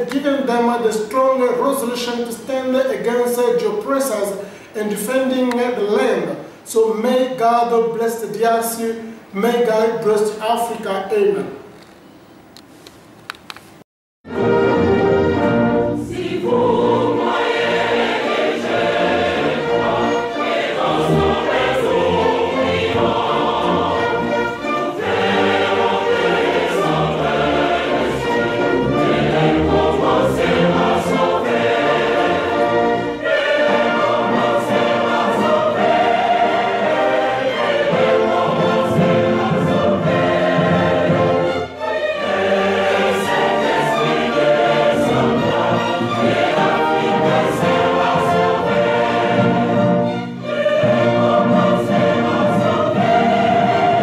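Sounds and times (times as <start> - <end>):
choir singing with music: 14.3 - 54.0.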